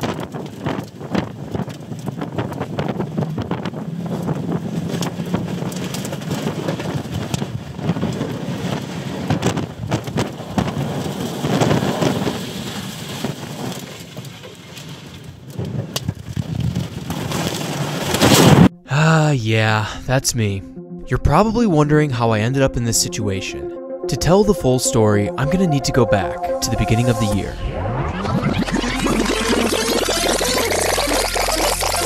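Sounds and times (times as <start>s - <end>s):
wind rushing around car: 0.0s - 14.2s.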